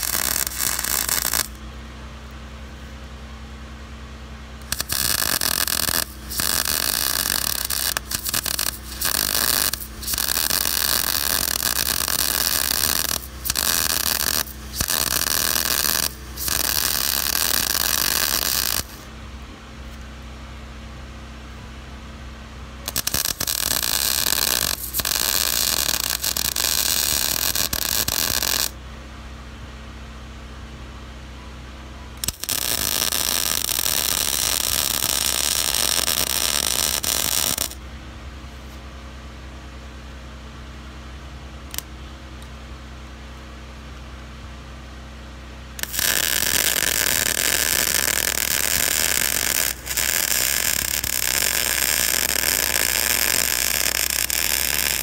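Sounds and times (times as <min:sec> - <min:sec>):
welder arc hissing: 0:00.0 - 0:01.6, 0:04.6 - 0:19.1, 0:22.8 - 0:28.8, 0:32.2 - 0:37.8, 0:45.8 - 0:55.0.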